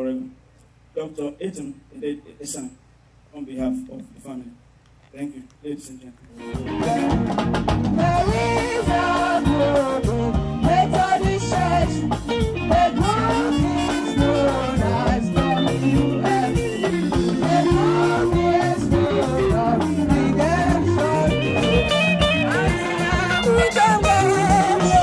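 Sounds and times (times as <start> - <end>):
bass line: 6.4 - 25.0
plucked guitar: 6.4 - 25.0
person singing: 6.8 - 7.2, 8.0 - 25.0.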